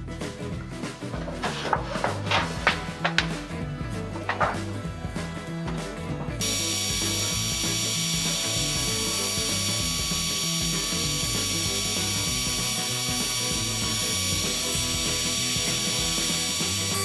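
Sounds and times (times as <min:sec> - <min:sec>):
background music: 0:00.0 - 0:17.0
heat gun blowing air: 0:06.4 - 0:17.0.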